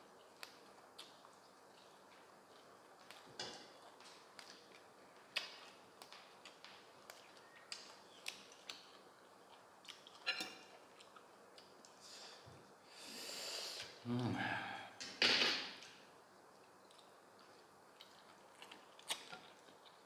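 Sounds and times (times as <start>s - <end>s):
breathy hiss: 11.9s - 15.0s.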